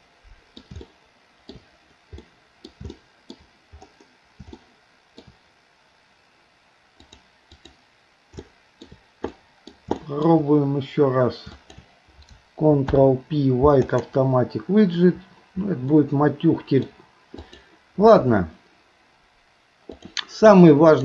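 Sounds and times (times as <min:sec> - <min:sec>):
mouse and keyboard clicking: 0:00.6 - 0:00.9, 0:01.5 - 0:04.6, 0:07.0 - 0:10.1, 0:13.8 - 0:14.1.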